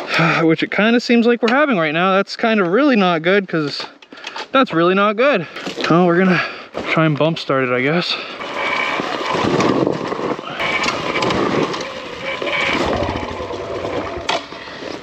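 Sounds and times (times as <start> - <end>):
tyres rolling over dirt: 5.7 - 15.0
dirt bike engine chugging: 10.4 - 14.7.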